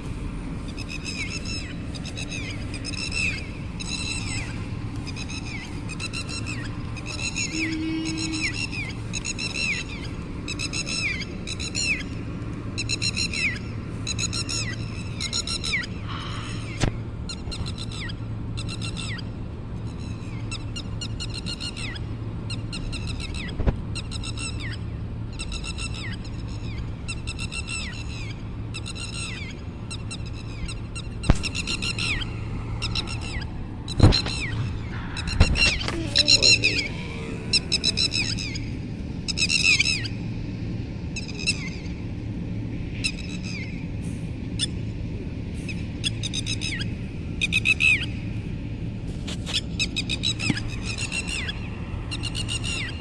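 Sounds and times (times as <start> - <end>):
low steady hum: 0.0 - 53.0
lapwing alarm call: 0.6 - 12.0, 25.4 - 40.2.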